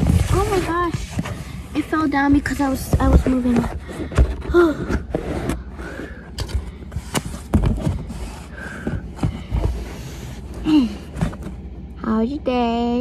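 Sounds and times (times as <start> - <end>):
scraping and rustling on cardboard: 0.0 - 11.6.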